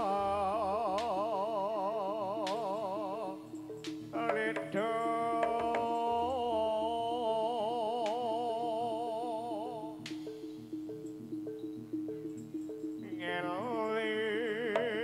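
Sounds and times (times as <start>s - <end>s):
melody with wavering vibrato: 0.0s - 15.0s
struck percussion beat: 2.4s - 7.1s, 10.0s - 15.0s.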